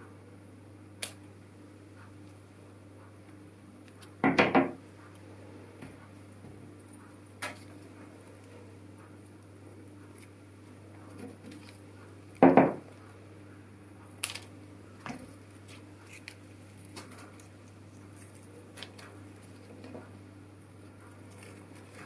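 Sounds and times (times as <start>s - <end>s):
steady low hum: 0.0s - 22.0s
foliage stems tapping and rustling: 11.1s - 12.5s, 14.1s - 20.1s, 21.1s - 22.0s.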